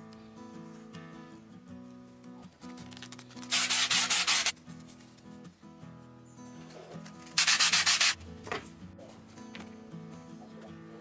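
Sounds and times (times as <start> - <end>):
sandpaper rasping on foam: 3.4 - 4.5, 7.4 - 8.2.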